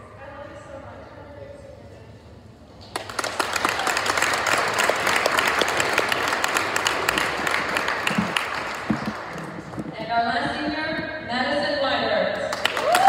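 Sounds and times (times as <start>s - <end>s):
audience applause: 2.9s - 9.9s, 12.5s - 13.0s.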